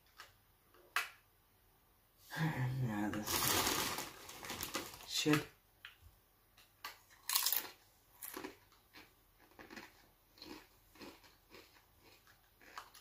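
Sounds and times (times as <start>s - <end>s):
chip crunching while chewed: 7.0s - 13.0s.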